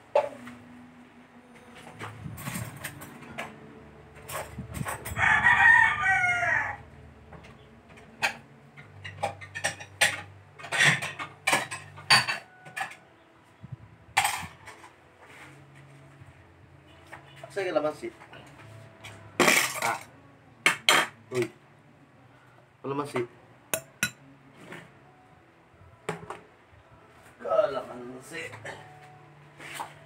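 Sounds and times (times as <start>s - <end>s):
rooster crowing: 5.1s - 7.0s
utensils clinking on plates: 8.2s - 13.0s, 14.2s - 14.9s, 19.4s - 20.1s.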